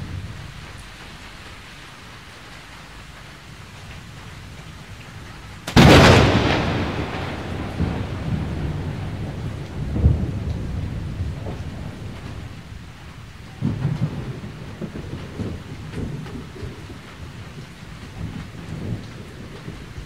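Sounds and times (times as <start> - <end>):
steady rain: 0.0 - 20.0
thunderclap rolling into rumble: 5.6 - 20.0.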